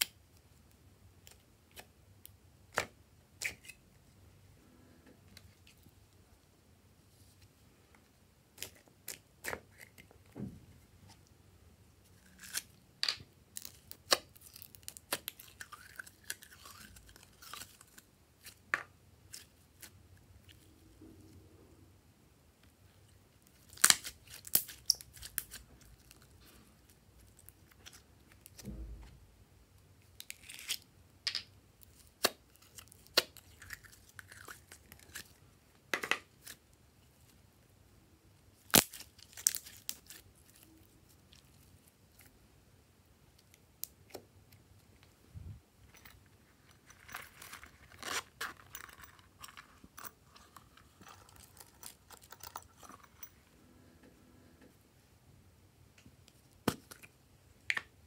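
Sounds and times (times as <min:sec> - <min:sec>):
soft low thump: 0:28.6 - 0:29.3.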